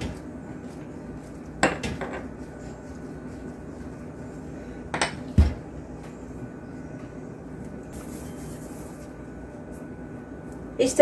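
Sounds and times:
hands shaping dough: 0:00.0 - 0:06.2.

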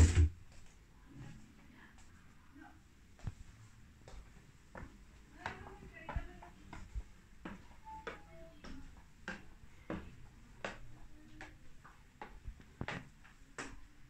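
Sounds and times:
footsteps on stairs: 0:03.2 - 0:14.0.

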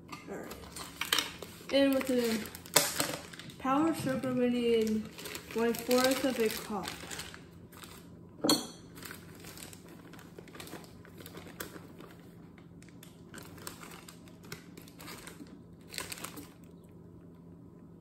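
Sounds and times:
plastic bag crinkling: 0:00.4 - 0:08.1, 0:08.8 - 0:16.8.

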